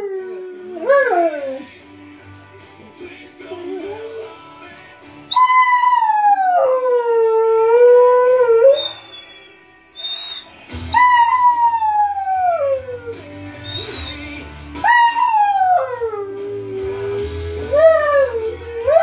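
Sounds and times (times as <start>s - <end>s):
dog howling: 0.0s - 1.7s, 5.3s - 9.4s, 10.0s - 19.0s
recorded music: 0.0s - 19.0s.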